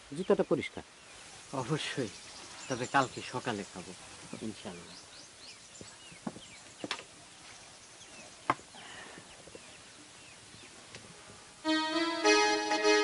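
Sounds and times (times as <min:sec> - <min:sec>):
faint bird chirps: 0:00.0 - 0:11.4
reedy keyboard music: 0:11.6 - 0:13.0.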